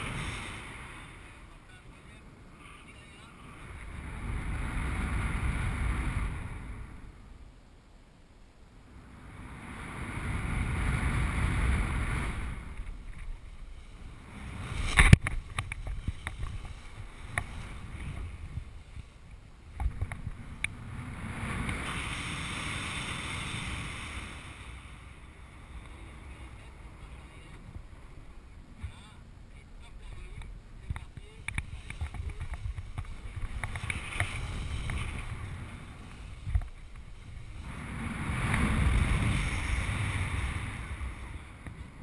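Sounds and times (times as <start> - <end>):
wind rushing over microphone: 0.0 - 7.6, 8.7 - 42.0.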